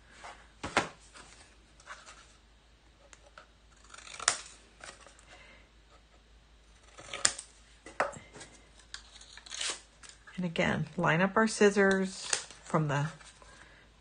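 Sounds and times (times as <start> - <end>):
scissors snipping paper: 3.7 - 5.1.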